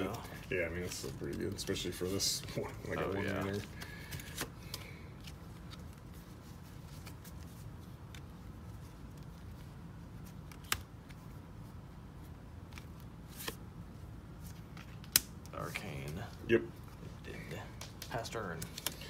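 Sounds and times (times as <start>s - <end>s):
low room hum: 0.0s - 19.0s
trading cards clicking and tapping: 17.7s - 19.0s.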